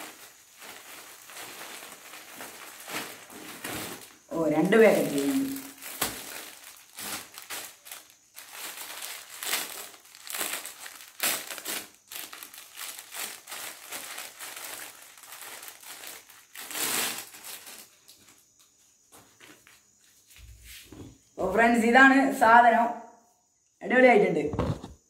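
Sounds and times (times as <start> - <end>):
plastic bag crinkling: 0.0 - 18.4.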